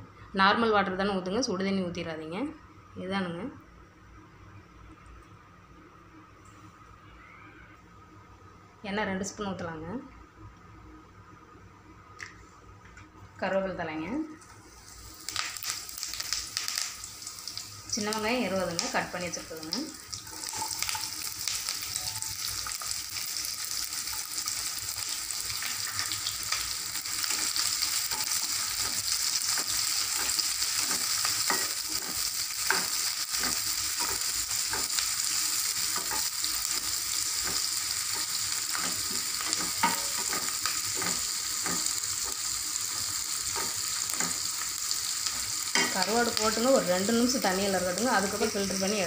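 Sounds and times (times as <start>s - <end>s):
onions sizzling in oil: 14.5s - 49.0s.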